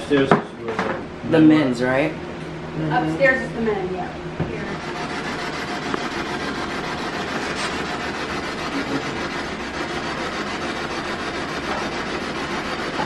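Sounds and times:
rapidly chopped radio static: 4.8s - 13.0s.

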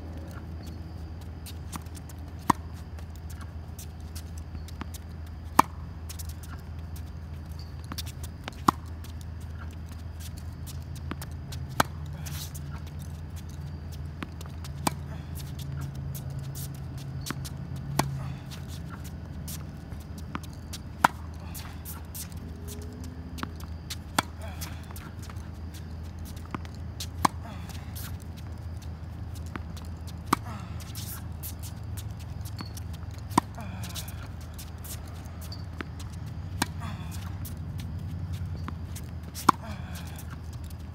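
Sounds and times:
low hum: 0.0s - 40.9s
shoe scuffs on court: 0.2s - 40.9s
racket hitting tennis ball: 9.5s - 28.4s, 29.2s - 40.7s.

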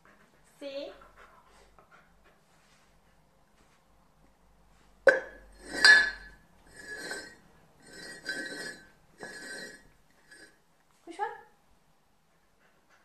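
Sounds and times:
mug clinking on hard floor: 5.1s - 10.5s
mugs scraping on floor: 5.5s - 10.6s.

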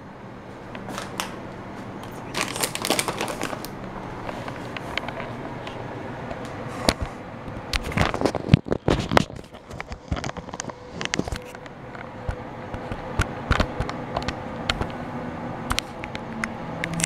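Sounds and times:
rustling and crackling handling noise: 0.7s - 12.1s.

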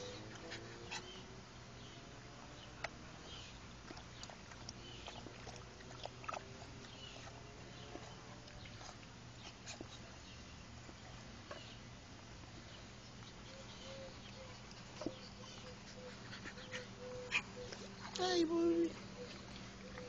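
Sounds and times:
puppies whimpering: 13.5s - 20.0s.

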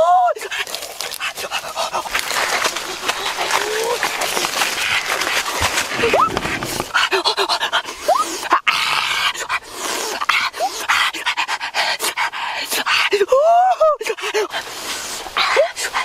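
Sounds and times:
biting and tearing food: 0.4s - 7.3s
wet chewing and smacking: 0.4s - 7.8s.

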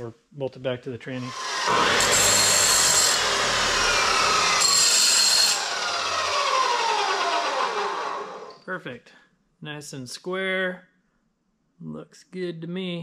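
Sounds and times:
abrasive chop saw running: 1.2s - 8.6s
saw wheel cutting metal: 1.2s - 8.6s
motor winding down whine: 1.3s - 8.6s.

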